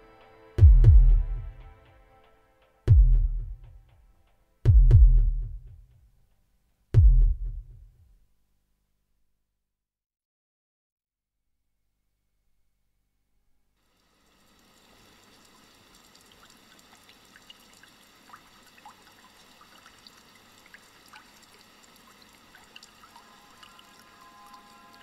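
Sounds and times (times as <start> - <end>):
steady musical tones: 0.0 - 4.1
faint trickling water: 13.8 - 25.0.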